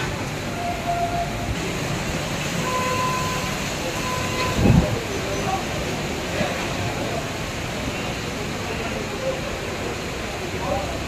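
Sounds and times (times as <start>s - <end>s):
heavy rain: 0.0s - 11.0s
gusty storm wind: 3.7s - 5.2s.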